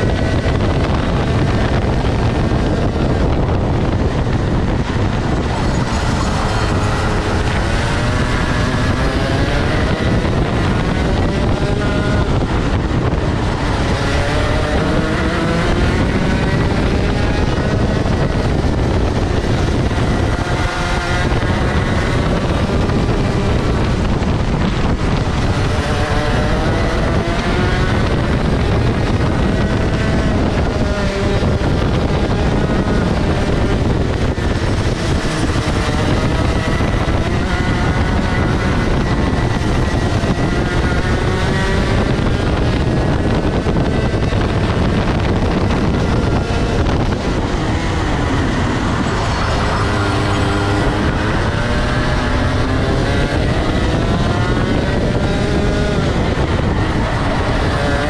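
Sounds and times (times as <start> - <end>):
kart engine accelerating and slowing: 0.0 - 58.0
wind rush on microphone: 0.0 - 58.0.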